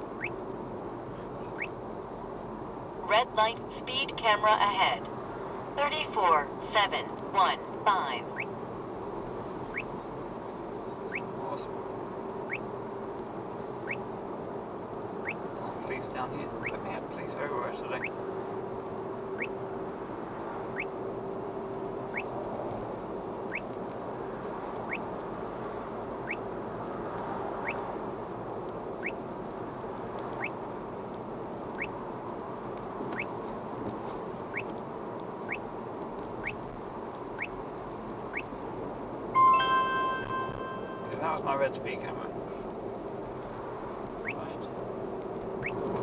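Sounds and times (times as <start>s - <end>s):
road noise inside car: 0.0s - 46.0s
rising alert chirp: 39.4s - 41.3s.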